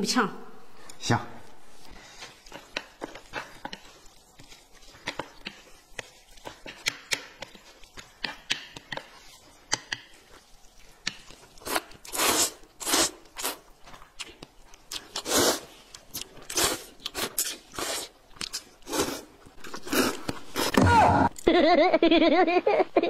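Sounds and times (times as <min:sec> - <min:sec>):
noodles being slurped: 0:01.8 - 0:20.8
chopsticks clicking against plates: 0:05.0 - 0:09.1, 0:09.7 - 0:10.2.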